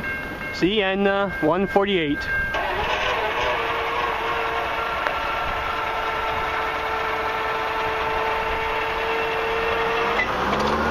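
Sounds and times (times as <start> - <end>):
engine humming steadily: 2.4 - 10.9.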